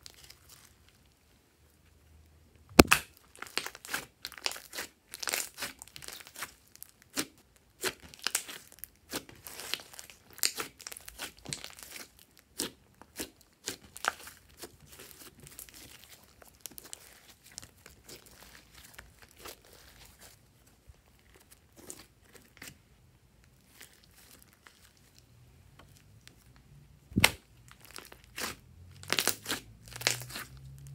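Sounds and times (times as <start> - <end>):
slime crackling and popping: 2.8 - 20.4, 23.5 - 25.2, 27.2 - 30.9.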